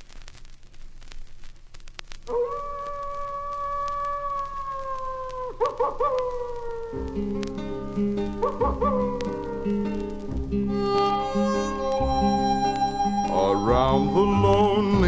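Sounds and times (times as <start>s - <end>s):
vinyl record crackle: 0.0s - 15.0s
wolf howl: 2.3s - 7.2s, 8.4s - 10.2s
low music: 6.8s - 15.0s.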